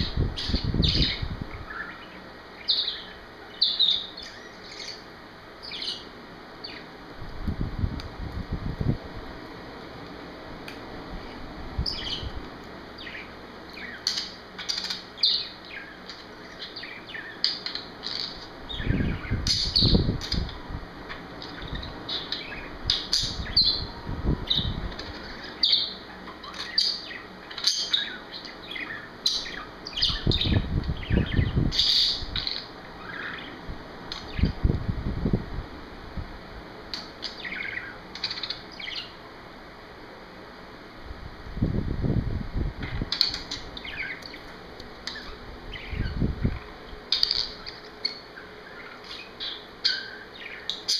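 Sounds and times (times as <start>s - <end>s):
wind rumble on microphone: 0.0s - 1.8s, 7.2s - 9.4s, 11.1s - 12.5s, 18.6s - 22.0s, 22.6s - 25.4s, 30.0s - 32.5s, 33.6s - 36.5s, 41.0s - 43.7s, 45.3s - 47.2s.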